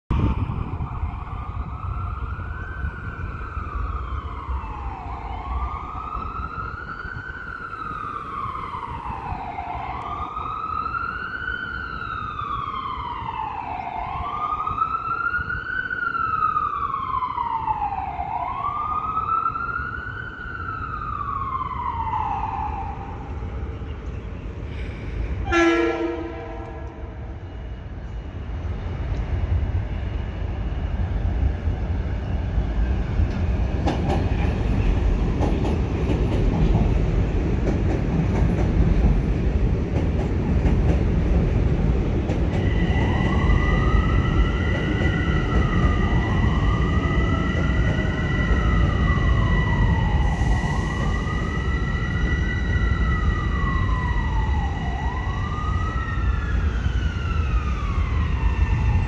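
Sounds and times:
emergency siren wailing: 0.1 - 23.9, 25.4 - 28.1, 41.3 - 59.0
horn blast: 25.4 - 27.2.

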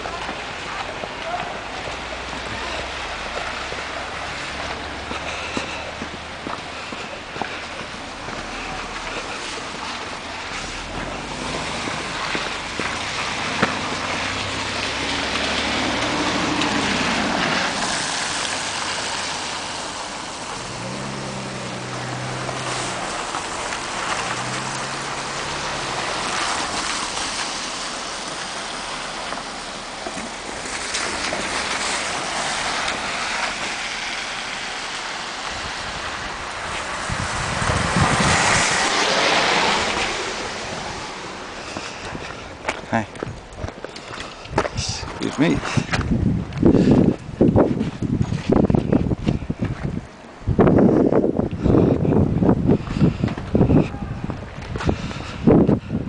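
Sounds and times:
tyres hissing on wet road: 0.0 - 43.0
low engine hum: 0.0 - 56.0
vehicle passing close: 2.3 - 42.2.

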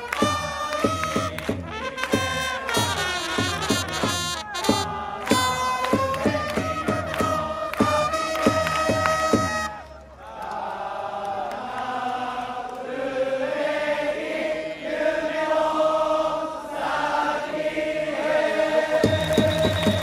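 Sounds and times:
drum beating: 0.0 - 9.7, 19.0 - 20.0
trumpets playing: 0.0 - 9.8
crowd singing in unison: 0.8 - 3.0, 4.8 - 9.0, 10.2 - 20.0.

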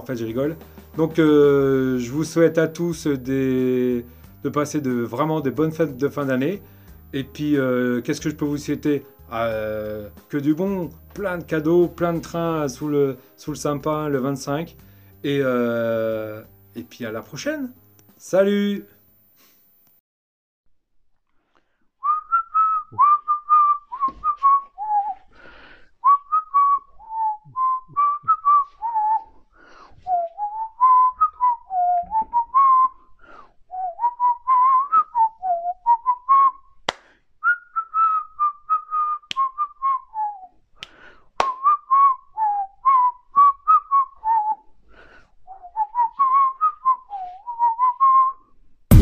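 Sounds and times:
man whistling a tune: 22.0 - 25.3, 26.0 - 29.4, 30.0 - 36.8, 37.4 - 40.6, 41.4 - 44.7, 45.5 - 48.6.

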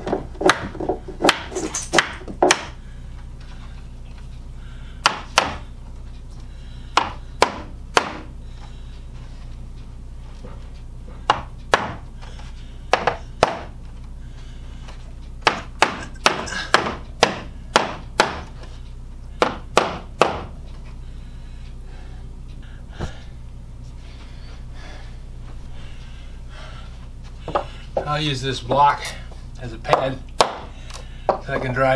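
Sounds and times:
hammer tapping wooden trim: 0.1 - 2.8, 5.0 - 5.6, 7.0 - 8.3, 11.3 - 12.0, 12.9 - 13.8, 15.4 - 18.6, 19.4 - 20.5, 29.9 - 30.7.

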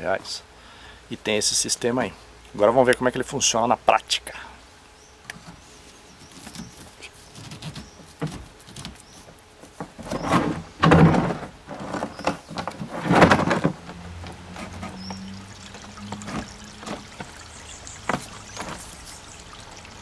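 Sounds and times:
hose rubbing and knocking: 9.8 - 17.4, 18.0 - 19.3.

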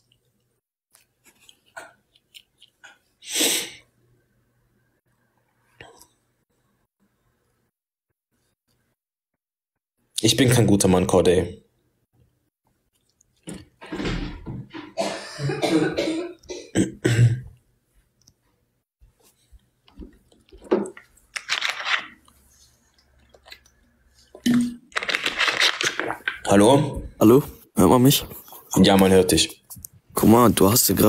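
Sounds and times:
person coughing: 14.9 - 17.5
person clearing throat: 14.9 - 17.6.

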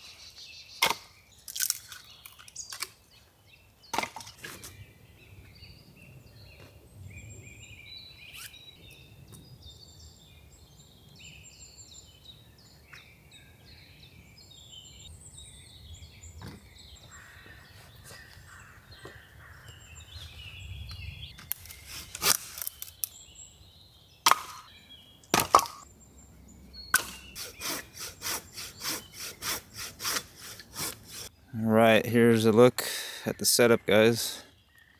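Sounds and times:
songbirds chirping and singing: 0.0 - 34.9
wood cracking: 0.8 - 3.0, 25.2 - 25.8.

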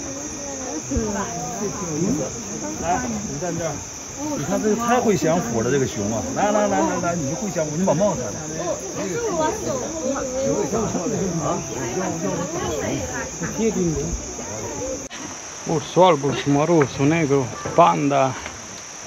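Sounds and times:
people talking indistinctly: 0.0 - 15.1
high-pitched insect drone: 0.0 - 16.2.

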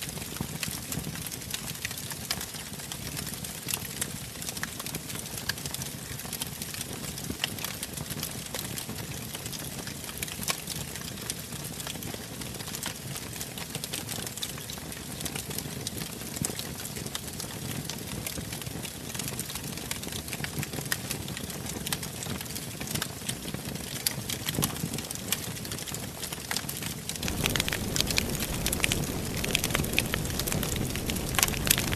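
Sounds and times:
logs crackling and popping: 26.5 - 31.9
fire flames rushing: 27.2 - 31.9.

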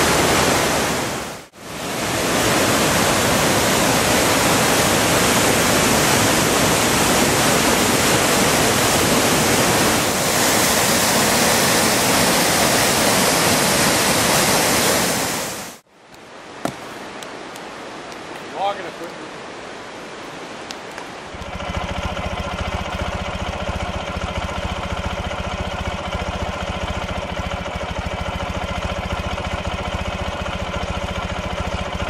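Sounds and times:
river rapids rushing over rocks: 0.0 - 15.8.

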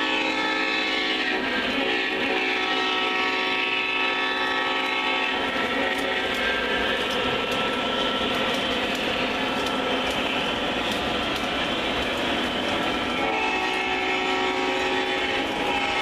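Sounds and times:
horn-like tone: 0.0 - 6.3, 13.2 - 16.0
diesel locomotive engine sound: 0.0 - 16.0
model train wheels rumbling: 0.0 - 16.0
clicking at rail joints: 4.6 - 16.0.

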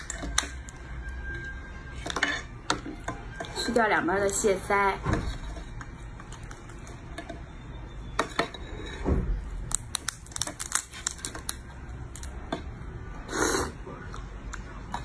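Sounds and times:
crab shell cracking: 9.6 - 12.4.

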